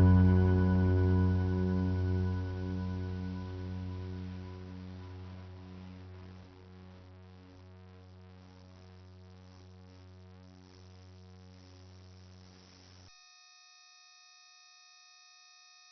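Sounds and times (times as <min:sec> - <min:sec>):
pure electronic tones: 0:00.0 - 0:06.2
steady low drone: 0:00.0 - 0:06.9
quiet electronic ambient music: 0:00.0 - 0:08.6.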